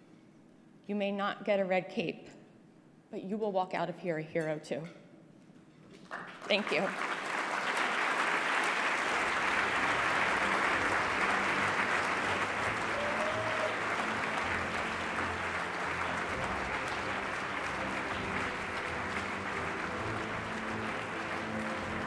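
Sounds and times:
audience applauding: 0:06.0 - 0:22.0.

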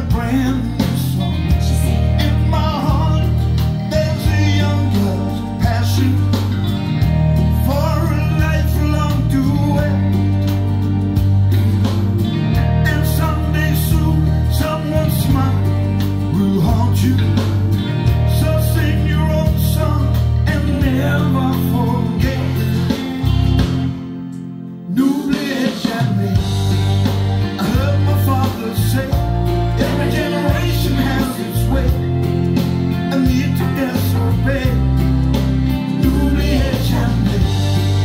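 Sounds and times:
pop-rock song over loudspeakers: 0:00.0 - 0:38.0.

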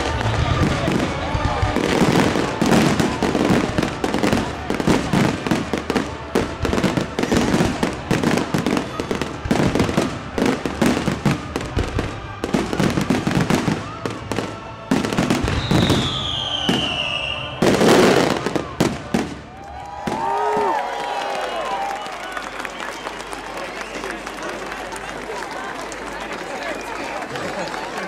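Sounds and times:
fireworks bangs and crackles: 0:00.0 - 0:20.8
whistling firework: 0:00.0 - 0:24.2.

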